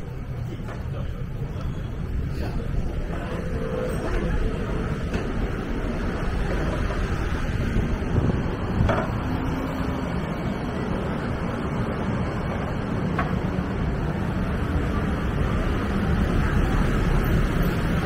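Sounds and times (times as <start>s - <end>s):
traffic rumble: 0.0s - 18.0s
wind buffeting microphone: 2.0s - 10.2s.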